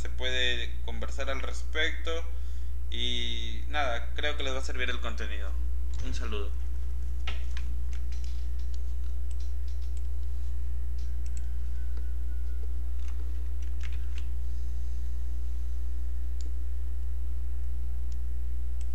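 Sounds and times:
steady low hum: 0:00.0 - 0:18.9
computer mouse and key clicks: 0:07.2 - 0:10.3, 0:10.9 - 0:14.3.

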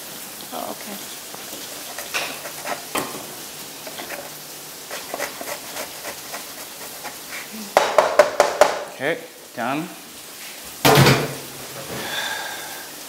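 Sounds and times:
food sizzling: 0:00.0 - 0:13.0
kitchen utensils tapping: 0:01.5 - 0:04.4, 0:07.8 - 0:08.9.

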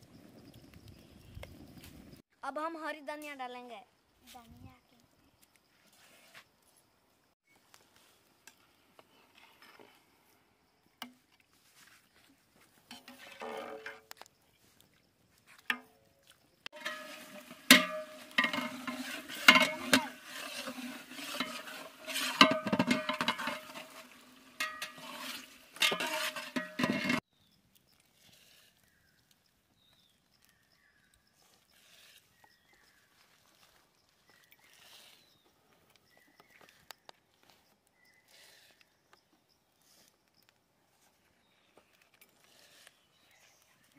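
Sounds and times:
metal ladle scraping a pot: 0:12.9 - 0:14.1, 0:16.7 - 0:27.2, 0:31.7 - 0:32.4
ladle clanking against pot: 0:16.8 - 0:27.2.

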